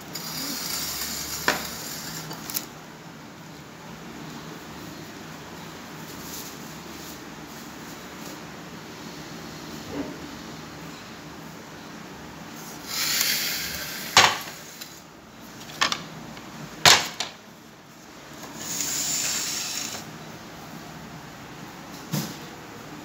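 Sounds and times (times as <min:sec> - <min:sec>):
dishes rustling and sliding: 0:18.0 - 0:20.2.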